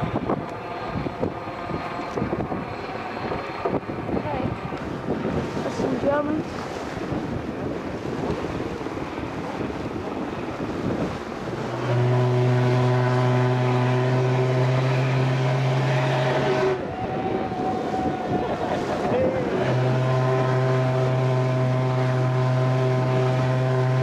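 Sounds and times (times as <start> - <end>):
wind on microphone: 0.0 - 24.0
ship's horn blast: 10.8 - 24.0.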